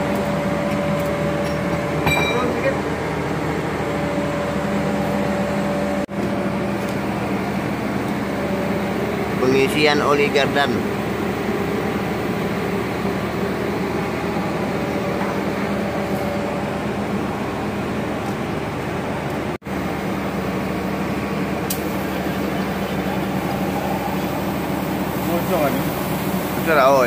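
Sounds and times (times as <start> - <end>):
machine humming: 19.7 - 27.0.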